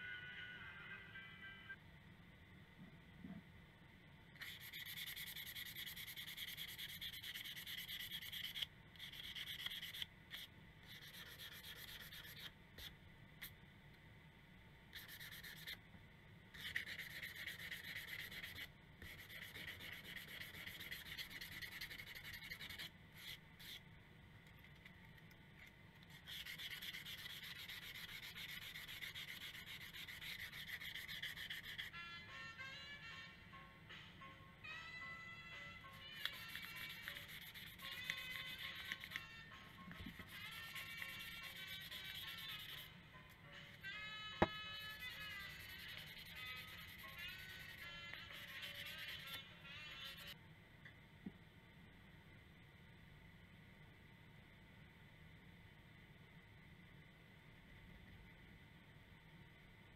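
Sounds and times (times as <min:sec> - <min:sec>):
abrasive tool rubbing on steel: 0:26.1 - 0:32.1.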